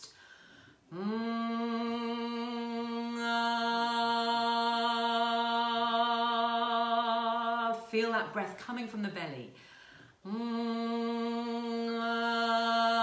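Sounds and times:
woman singing a long note: 0:00.9 - 0:08.2, 0:10.2 - 0:13.0.

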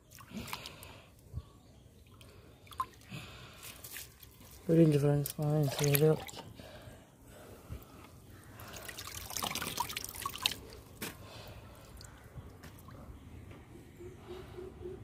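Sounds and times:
sharp drips: 0:02.2 - 0:06.4, 0:08.6 - 0:10.9
water splashing: 0:03.6 - 0:06.4, 0:08.6 - 0:11.0.

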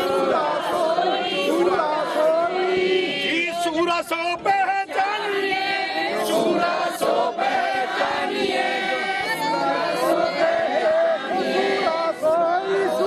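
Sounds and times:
crowd singing in unison: 0:00.0 - 0:13.0
man leading singing: 0:01.5 - 0:05.5.

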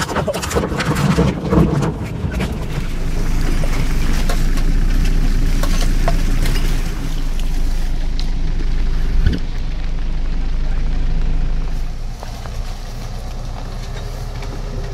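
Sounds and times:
knocks and clicks over rough ground: 0:00.0 - 0:14.9
off-road vehicle engine rumble: 0:00.0 - 0:14.9.

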